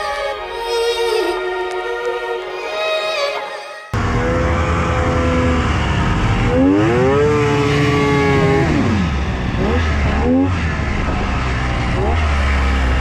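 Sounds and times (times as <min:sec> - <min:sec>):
snowmobile engine revving: 0:04.0 - 0:13.0.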